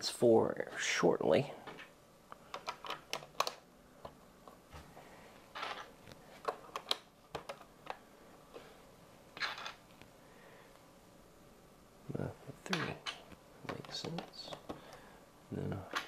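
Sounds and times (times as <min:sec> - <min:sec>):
rustling of loose pieces: 0:01.6 - 0:08.7, 0:09.4 - 0:10.1.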